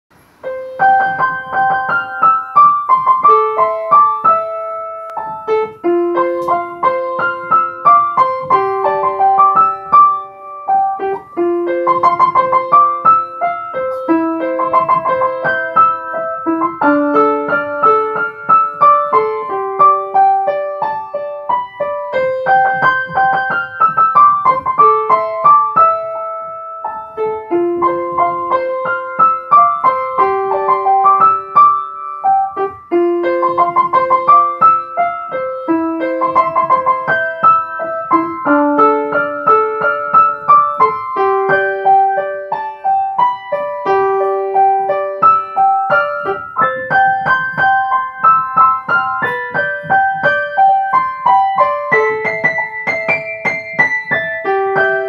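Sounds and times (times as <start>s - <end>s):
upright piano melody: 0.1s - 55.0s.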